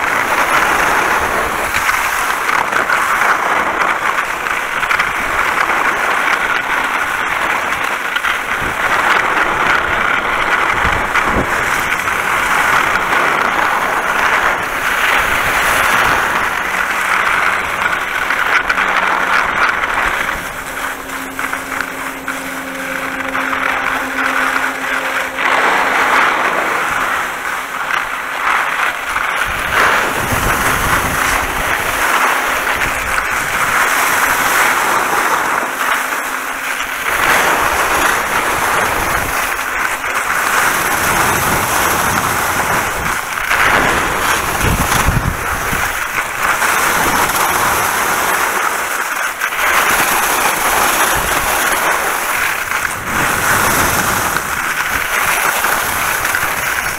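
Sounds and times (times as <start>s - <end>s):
skis scraping over snow: 0.0s - 56.9s
steady hum: 0.0s - 56.9s
wind buffeting microphone: 0.0s - 56.9s.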